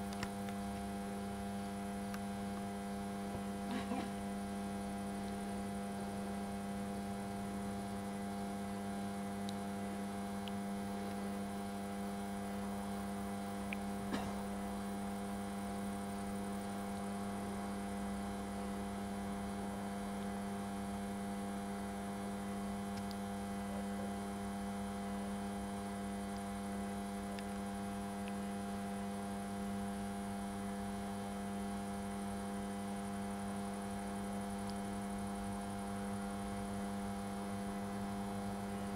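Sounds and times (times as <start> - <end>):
electrical hum: 0.0 - 38.9
faint click: 23.0 - 23.2.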